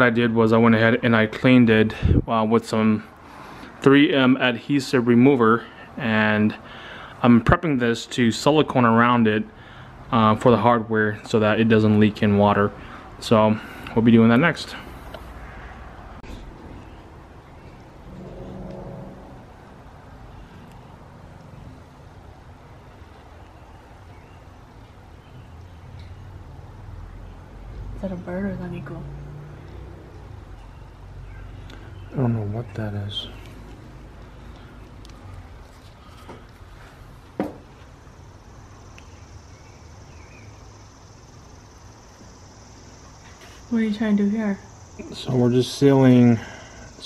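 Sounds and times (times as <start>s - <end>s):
low rumble of traffic: 0.0s - 47.0s
insects droning: 2.8s - 47.0s
low hum: 14.7s - 32.6s.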